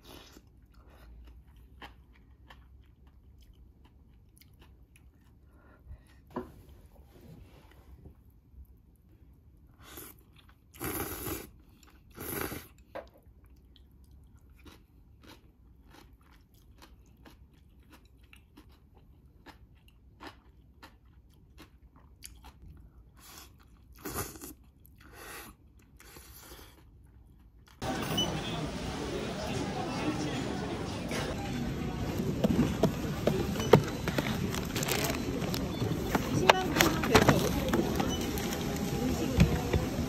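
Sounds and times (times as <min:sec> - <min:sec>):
chewing and crunching: 0:00.0 - 0:06.3, 0:10.0 - 0:27.8, 0:32.2 - 0:39.0.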